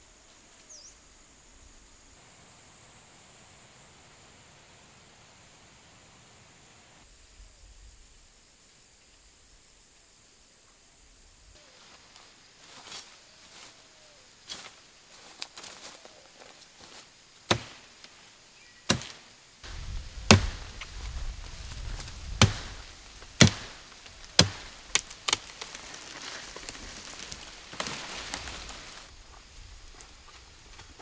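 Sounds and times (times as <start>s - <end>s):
machete chopping wood: 17.5s - 17.9s, 18.9s - 19.2s, 20.3s - 20.8s, 22.3s - 25.7s.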